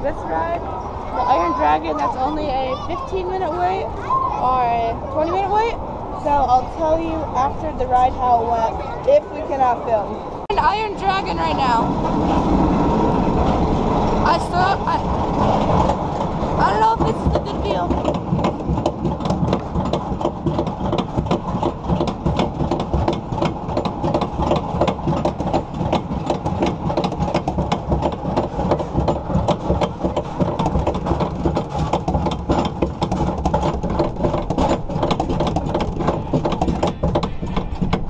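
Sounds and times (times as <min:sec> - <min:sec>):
roller coaster low rumble: 0:00.0 - 0:38.0
lift chain rapid clicking: 0:14.1 - 0:38.0.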